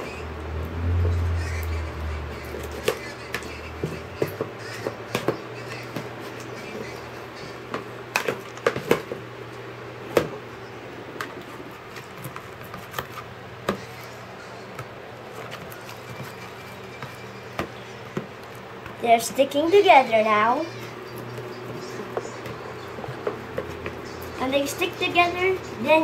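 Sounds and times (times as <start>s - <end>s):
spatula working sticky slime: 11.2s - 26.0s.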